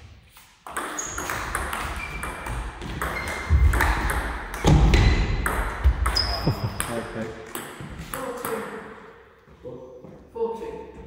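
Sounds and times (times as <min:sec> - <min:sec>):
shoe squeaks on floor: 0:00.9 - 0:01.4, 0:06.1 - 0:06.8.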